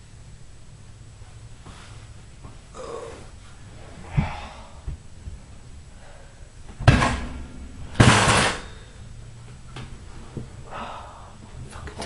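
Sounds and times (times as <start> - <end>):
bicycle crashing on floor: 6.8 - 8.8.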